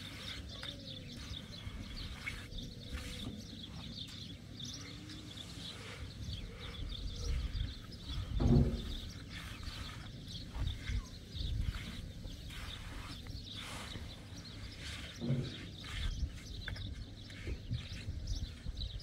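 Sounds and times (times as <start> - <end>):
small birds chirping: 0.0 - 19.0
wind rumble on microphone: 6.0 - 13.7, 14.8 - 19.0.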